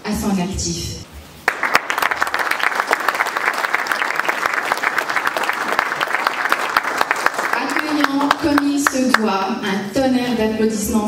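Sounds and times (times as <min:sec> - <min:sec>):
audience applauding: 0:01.4 - 0:09.5.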